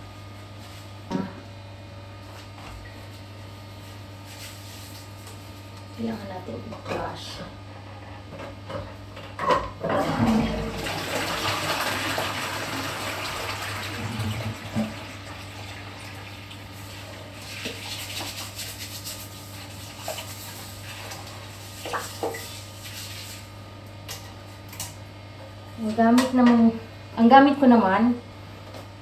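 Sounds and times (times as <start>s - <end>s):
toilet flushing: 9.8s - 18.6s.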